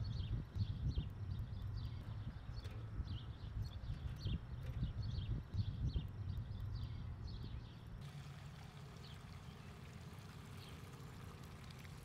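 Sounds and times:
liquid trickling through funnel: 8.1 - 12.0.

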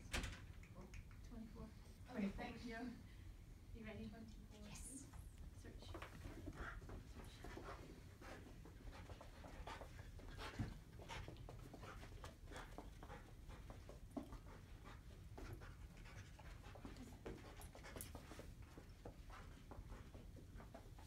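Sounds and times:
dog panting and sniffing: 5.8 - 21.0.

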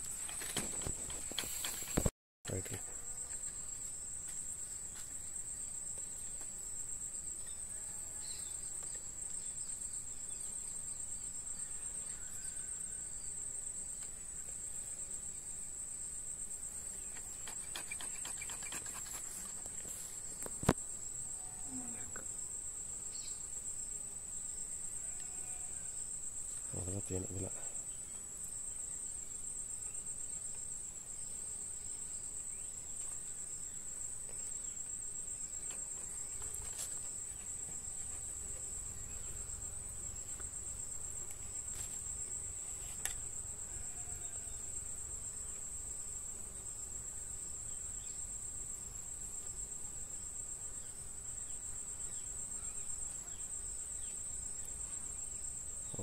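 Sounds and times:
high-pitched insect chirring: 17.1 - 19.6.

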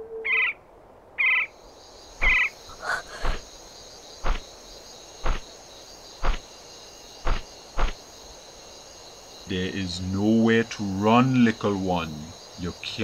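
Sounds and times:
insects chirring: 0.0 - 13.0
frog calls: 1.2 - 4.6
heavy footsteps: 5.2 - 5.5, 6.2 - 6.4, 7.2 - 8.0.

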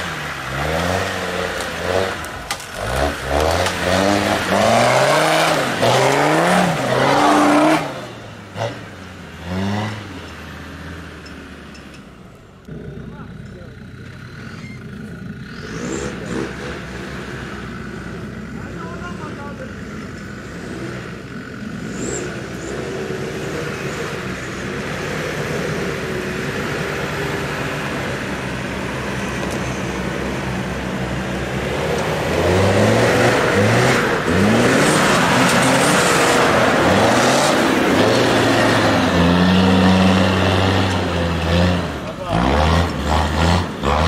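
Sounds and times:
diesel engine revving: 0.0 - 44.0.

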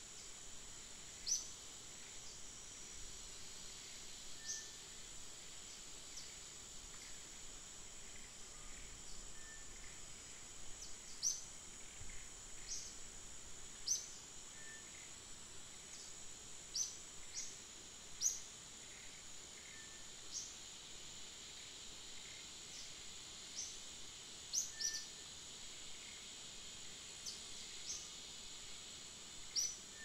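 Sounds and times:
high-pitched insect drone: 0.1 - 30.0.

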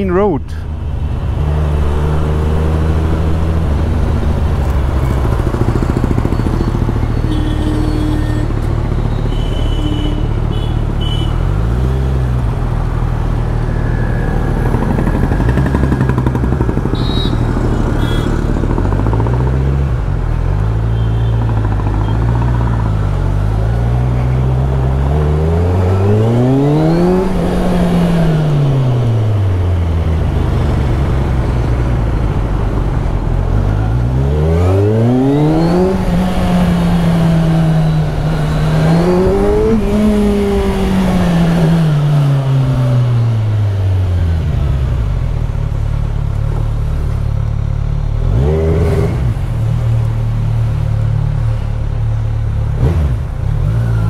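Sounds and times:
motorcycle engine revving: 14.0 - 47.2, 47.9 - 51.6, 52.4 - 54.0.

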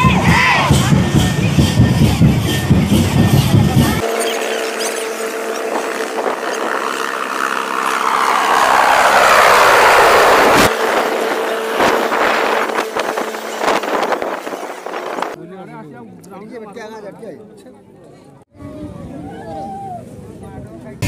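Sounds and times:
helicopter rotor and turbine: 0.0 - 15.4.

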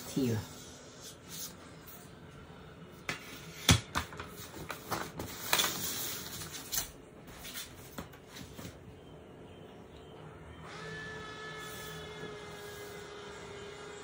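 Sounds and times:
paper rustling: 4.2 - 8.8.

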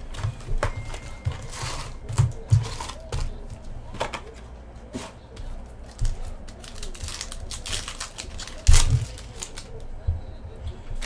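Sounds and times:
foil packs sliding: 6.0 - 9.7.

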